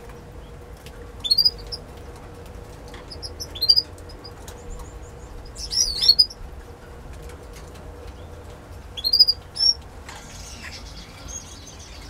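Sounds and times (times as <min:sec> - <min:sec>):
canary chirping: 0:01.2 - 0:01.8, 0:03.0 - 0:04.8, 0:05.4 - 0:06.4, 0:09.0 - 0:12.0.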